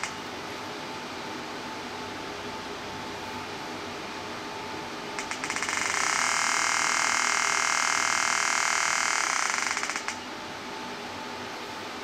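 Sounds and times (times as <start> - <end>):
rapid clicks into pulsing buzz: 0.0 - 0.2, 5.2 - 10.3
cooling fan hiss: 0.0 - 12.0.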